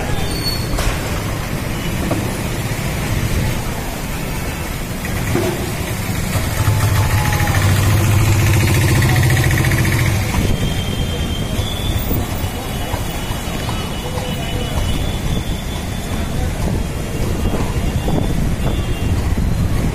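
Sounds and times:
vehicle engine humming: 1.0s - 11.2s
wind buffeting microphone: 14.8s - 19.9s.

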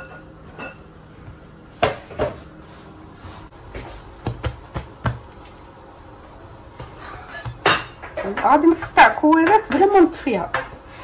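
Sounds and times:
hands kneading dough: 1.3s - 5.7s.

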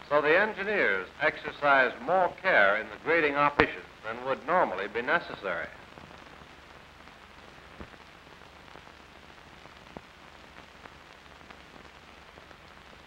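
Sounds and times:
film soundtrack hiss and crackle: 0.0s - 13.0s.

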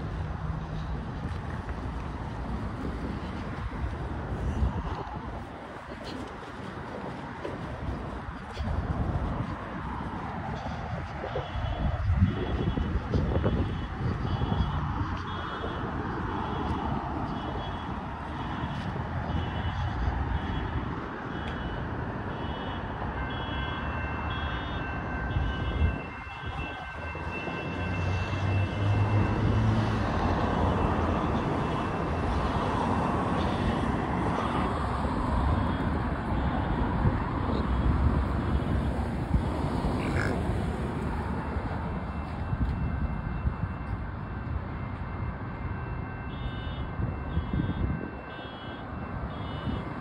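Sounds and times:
wheels rolling on rough asphalt: 0.0s - 11.4s
traffic noise: 0.0s - 50.0s
wind: 0.0s - 50.0s.

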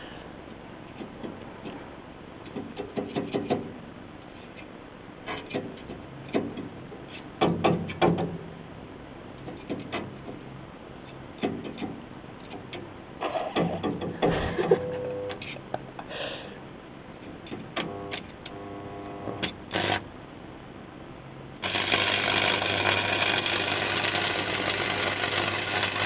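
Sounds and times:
sharp knocks and clatters: 2.5s - 3.8s, 7.4s - 8.5s, 9.4s - 10.5s, 11.4s - 12.9s.

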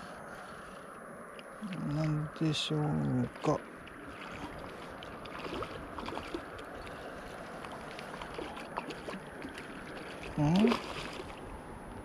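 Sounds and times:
water lapping at shore: 0.0s - 12.0s
faint light splashes: 3.3s - 11.5s.

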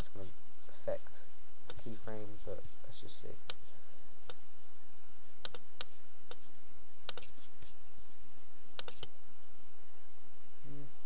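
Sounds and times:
steady hiss: 0.0s - 11.0s
computer mouse clicking: 5.4s - 7.4s, 8.8s - 9.1s.

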